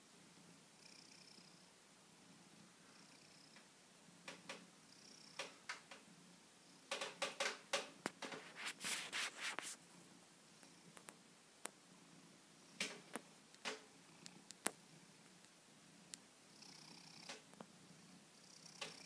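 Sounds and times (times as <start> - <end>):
cat purring: 0.2 - 11.2, 11.8 - 19.0
cat rubbing against microphone: 8.0 - 9.8.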